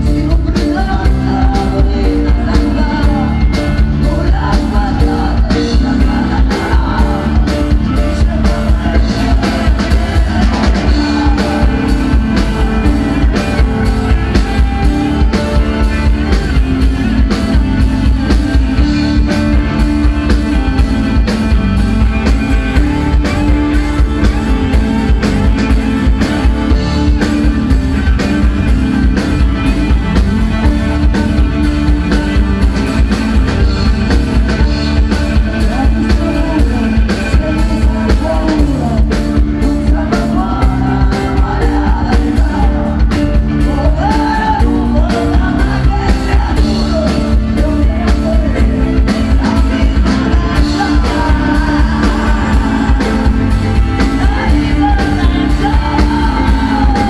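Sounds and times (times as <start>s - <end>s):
electric guitar: 0.0s - 57.0s
woman singing: 0.0s - 57.0s.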